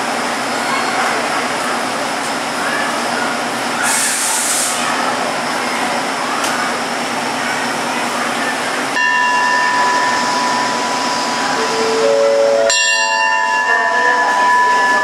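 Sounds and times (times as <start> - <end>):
diesel train engine rumbling: 0.0 - 15.0
short sharp hiss: 3.8 - 5.0
steady high multi-pitch tone: 9.0 - 15.0.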